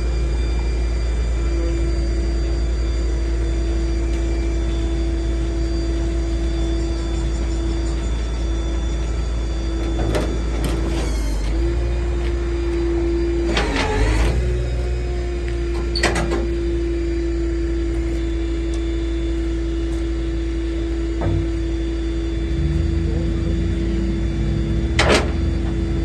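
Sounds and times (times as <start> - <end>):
truck engine idling: 0.0 - 26.0.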